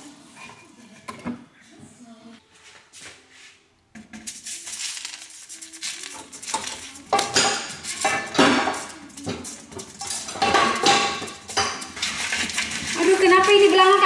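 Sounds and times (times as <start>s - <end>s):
metal pot rattling on stove: 5.6s - 14.0s.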